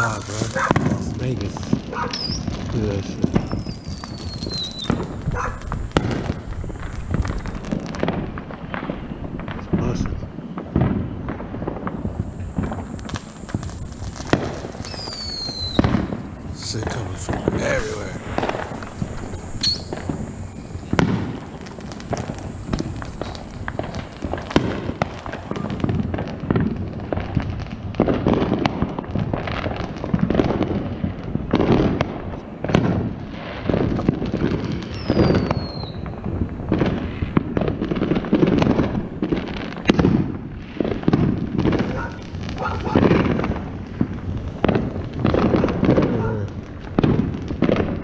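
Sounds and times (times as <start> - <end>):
firework falling whistle: 0.0 - 1.2, 1.9 - 27.2, 33.6 - 37.8
fireworks bangs and crackles: 0.0 - 48.0.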